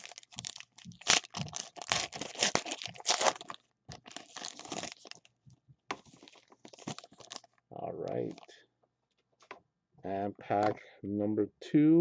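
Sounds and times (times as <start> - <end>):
foil wrapper crinkling: 0.0 - 5.3, 6.0 - 7.6.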